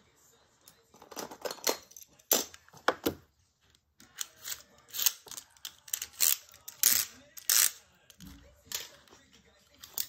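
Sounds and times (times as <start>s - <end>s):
plastic toy parts clicking: 4.0s - 9.1s.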